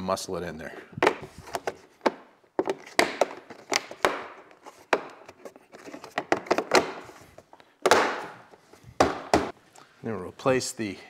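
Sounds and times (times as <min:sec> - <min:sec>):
plastic scraping: 0:01.0 - 0:09.4.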